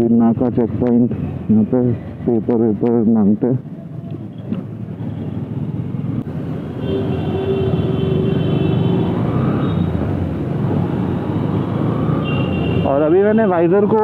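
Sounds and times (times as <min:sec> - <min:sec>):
motorbike engine and road noise: 0:00.0 - 0:14.0.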